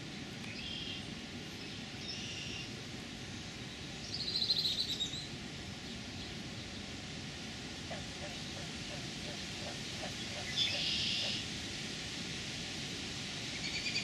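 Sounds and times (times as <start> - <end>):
low background rush: 0.0 - 13.9
small birds chirping: 3.7 - 6.9, 7.9 - 11.4.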